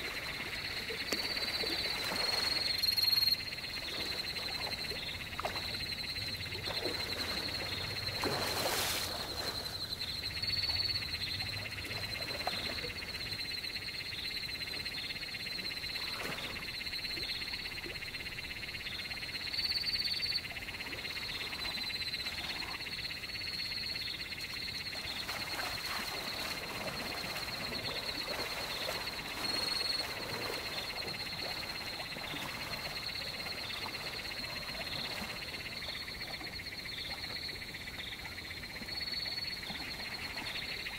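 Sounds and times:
frogs and insects chorus: 0.0 - 40.9.

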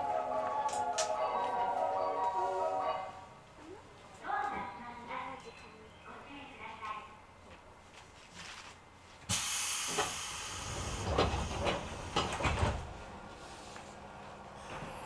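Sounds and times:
compressed-air hiss: 9.3 - 12.3
sliding doors thudding: 9.9 - 13.1.

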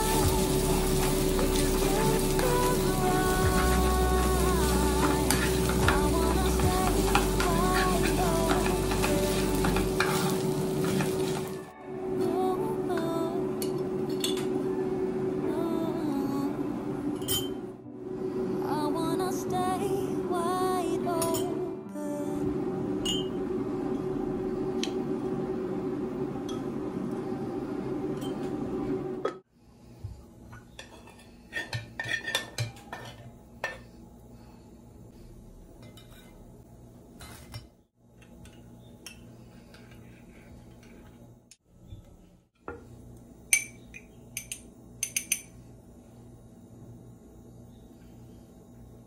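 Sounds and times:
steady hum: 0.0 - 30.4
spoon clinking in ceramic mug: 23.0 - 23.3
dishes clattering on counter: 30.5 - 33.9.

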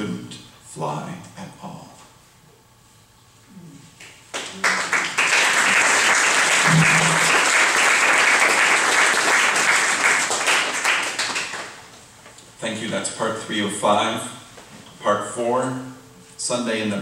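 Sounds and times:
small crowd clapping: 4.0 - 12.0.

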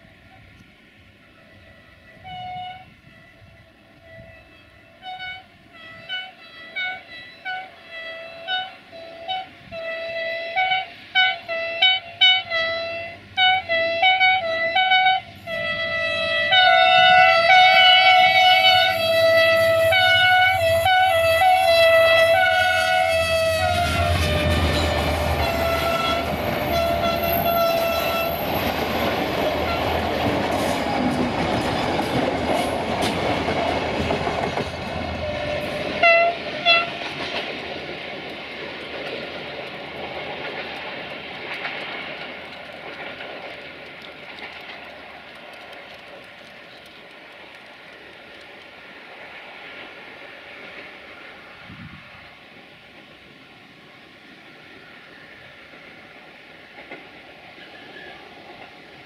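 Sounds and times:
locomotive engine passing: 0.0 - 59.0
locomotive air horn tooting: 1.5 - 28.8, 29.4 - 30.2, 35.1 - 37.0
train wheels clattering on rails: 12.3 - 51.6, 55.2 - 59.0.

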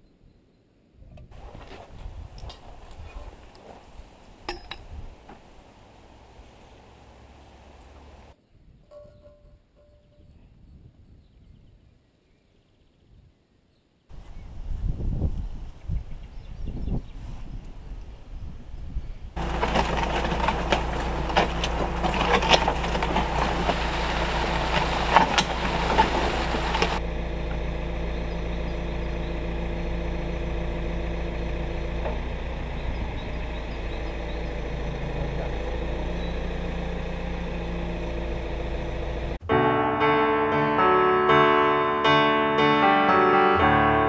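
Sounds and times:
loud clattering rush with clicks: 19.4 - 27.0
diesel engine running: 19.4 - 39.5.

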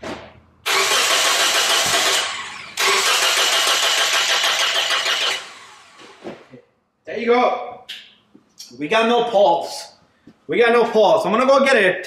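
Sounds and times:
car engine cranking: 0.6 - 5.9.

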